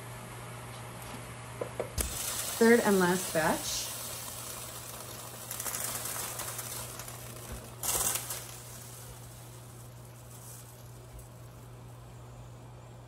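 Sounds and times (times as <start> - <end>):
boiling water bubbling: 2.0 - 13.0.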